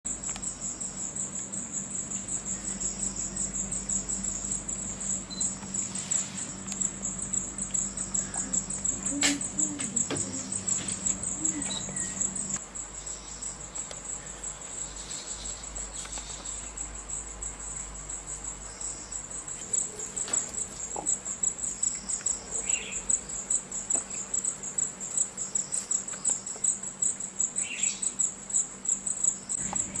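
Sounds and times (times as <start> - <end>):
insects trilling: 0.1 - 30.0
bird chirps: 11.2 - 13.3, 27.6 - 28.2.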